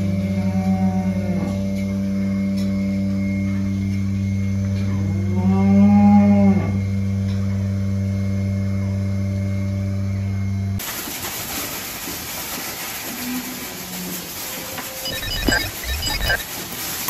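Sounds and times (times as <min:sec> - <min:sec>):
low mechanical hum: 0:00.0 - 0:10.8.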